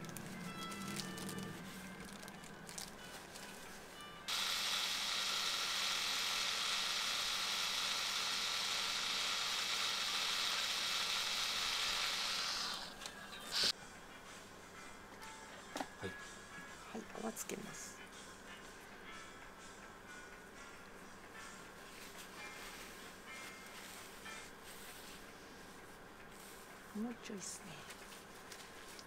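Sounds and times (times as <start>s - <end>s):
tattoo machine buzzing: 4.3s - 13.7s.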